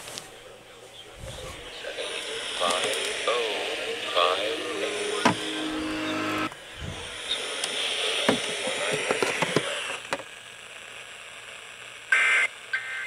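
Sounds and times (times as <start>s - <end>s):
radio hiss: 0.0s - 13.0s.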